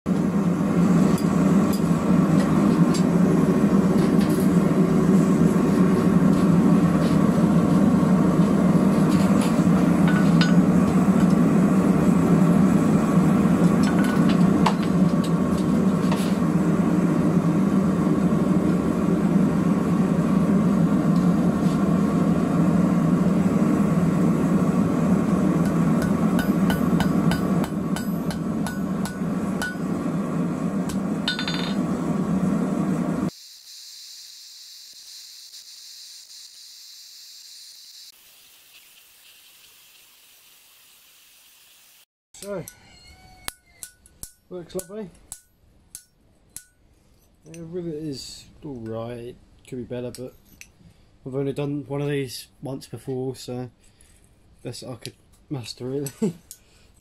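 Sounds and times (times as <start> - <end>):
hammer striking rivet on anvil: 25.6 - 29.8.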